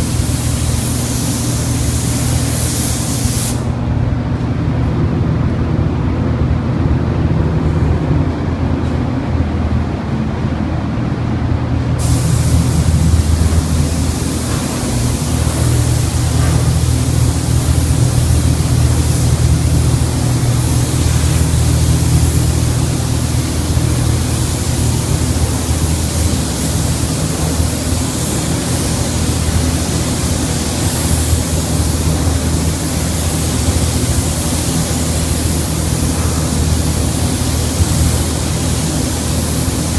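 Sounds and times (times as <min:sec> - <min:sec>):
spray gun hissing: 0:00.0 - 0:03.7, 0:12.0 - 0:39.9
steady low hum: 0:00.0 - 0:39.9.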